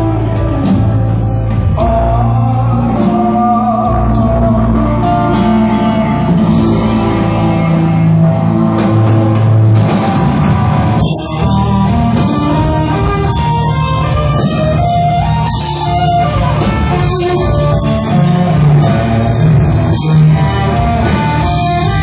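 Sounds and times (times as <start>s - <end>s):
person singing: 0.0s - 9.6s
drum kit: 0.0s - 22.0s
electric guitar: 0.0s - 22.0s
rock band playing live: 0.0s - 22.0s.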